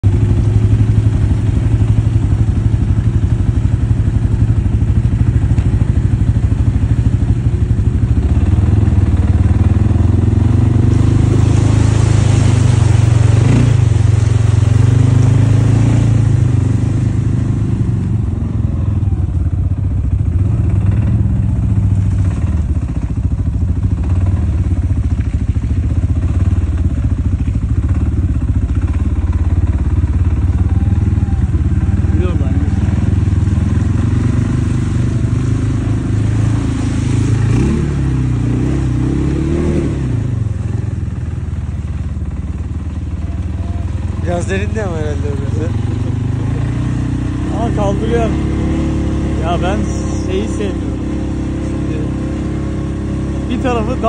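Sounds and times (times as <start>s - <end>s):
quad bike engine running: 0.0s - 54.0s.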